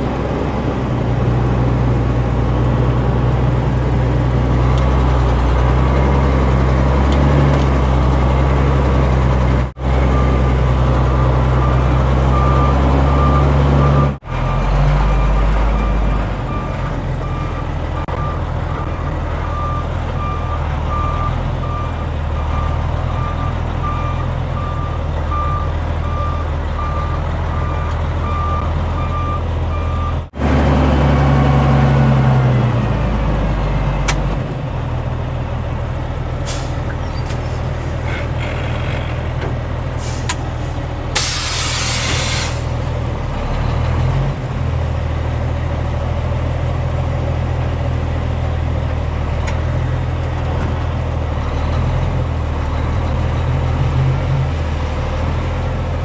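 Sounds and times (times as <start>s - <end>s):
diesel engine revving: 0.0s - 56.0s
air hiss: 41.2s - 42.8s.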